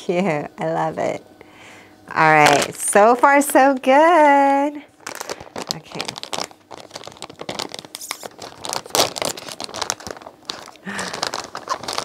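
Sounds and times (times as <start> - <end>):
plastic bag crinkling and tearing: 4.9 - 12.0.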